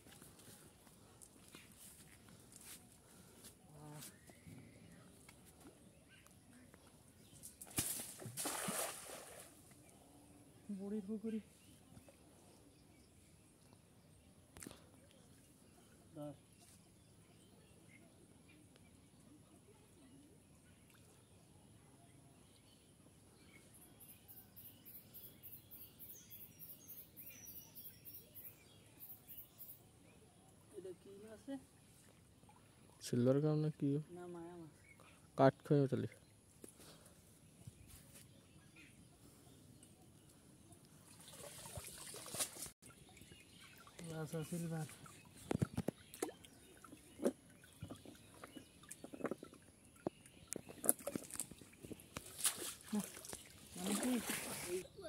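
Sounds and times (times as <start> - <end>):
faint bird chirps: 3.8 - 7.5, 9.7 - 32.1
net and rope rustling: 41.1 - 42.8, 50.6 - 54.9.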